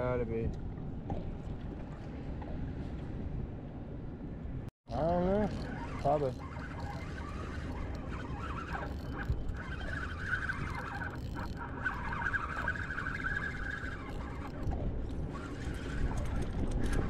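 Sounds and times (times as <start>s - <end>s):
wind rumble on microphone: 0.0s - 17.0s
fishing reel whirring: 4.9s - 17.0s.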